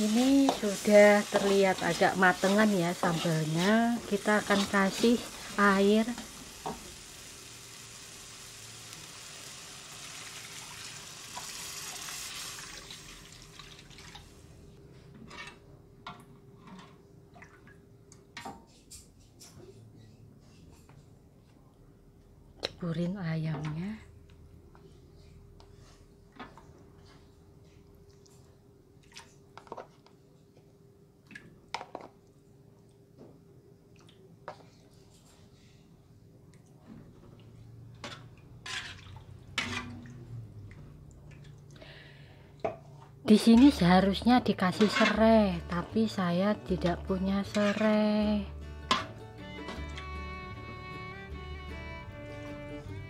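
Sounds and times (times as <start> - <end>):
paste sizzling in a wok: 0.0 - 13.3, 44.5 - 49.8
metal spatula scraping a wok: 0.1 - 5.6, 44.7 - 46.0, 47.0 - 48.3
water pouring: 9.8 - 14.4.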